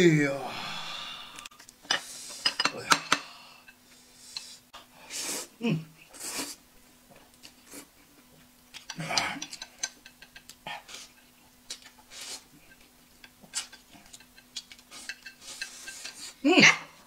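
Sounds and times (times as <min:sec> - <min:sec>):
breathy slurps or sniffs: 0:06.1 - 0:06.6
chopsticks clicking against bowls: 0:08.7 - 0:10.6, 0:13.2 - 0:16.4.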